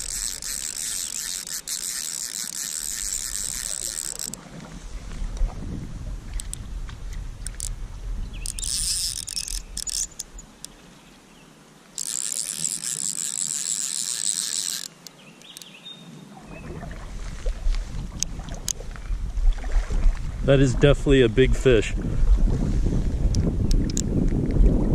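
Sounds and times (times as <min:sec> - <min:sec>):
fishing reel drag buzzing: 0:00.0 - 0:04.4, 0:07.4 - 0:07.7, 0:08.4 - 0:10.8, 0:12.0 - 0:15.7
wind rumble on microphone: 0:04.4 - 0:09.8, 0:16.4 - 0:24.9.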